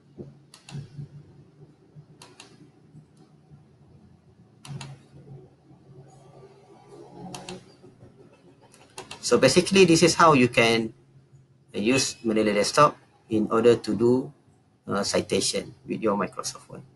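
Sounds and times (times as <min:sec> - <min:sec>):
faint steady hum: 0:00.0 - 0:16.9
computer mouse clicks: 0:00.2 - 0:01.2, 0:02.1 - 0:03.3, 0:04.6 - 0:05.2, 0:07.2 - 0:09.3.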